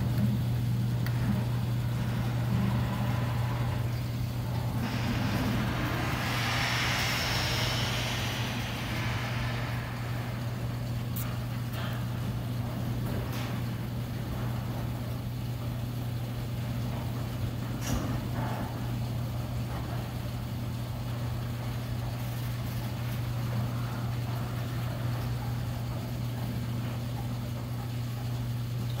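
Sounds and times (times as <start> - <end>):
garage door operator humming: 0.0 - 19.5.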